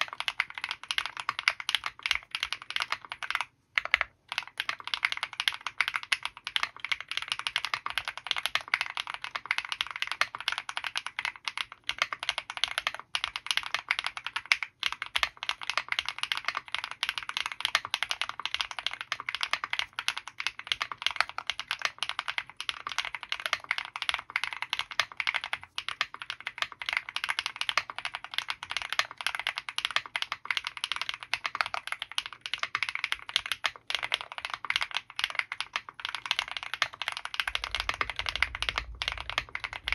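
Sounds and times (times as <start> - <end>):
fast mechanical keyboard typing: 0.0 - 39.9.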